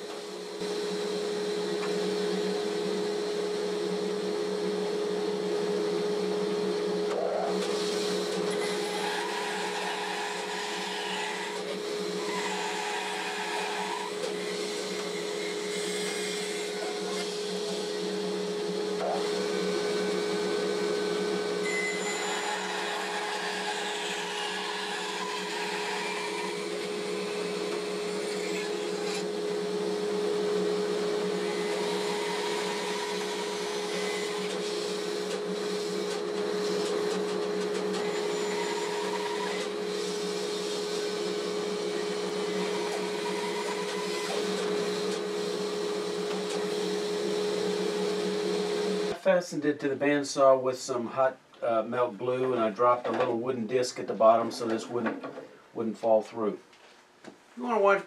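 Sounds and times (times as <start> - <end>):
bandsaw humming: 7.5 - 49.2
bandsaw blade cutting wood: 7.6 - 17.8, 21.6 - 29.3.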